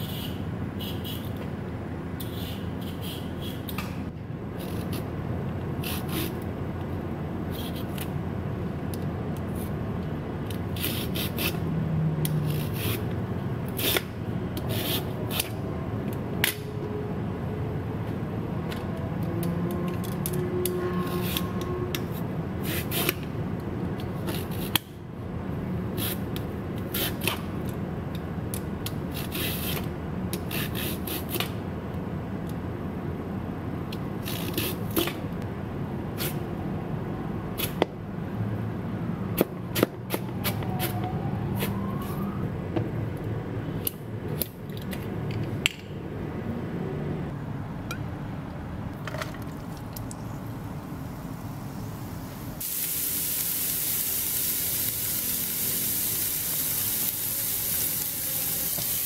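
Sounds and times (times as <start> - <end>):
peeler scraping carrot: 5.8 - 6.4, 7.5 - 8.0, 10.7 - 11.6, 12.4 - 13.1, 13.7 - 15.5, 29.1 - 31.5.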